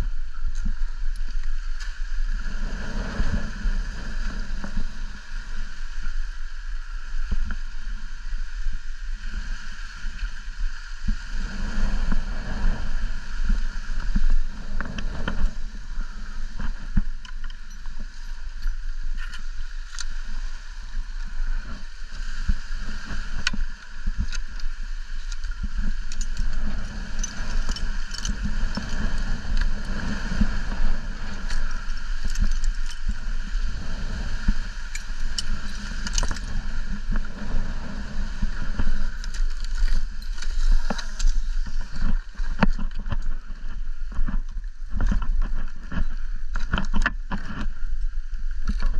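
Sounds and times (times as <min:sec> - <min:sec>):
wind buffeting microphone: 0:00.0 - 0:48.9
light clicks and rustles: 0:21.6 - 0:33.2, 0:34.6 - 0:37.6, 0:38.4 - 0:48.9.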